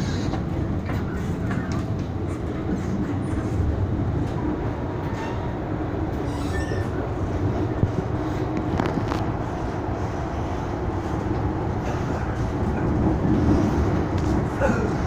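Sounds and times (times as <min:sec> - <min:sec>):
train wheels rumbling: 0:00.0 - 0:15.0.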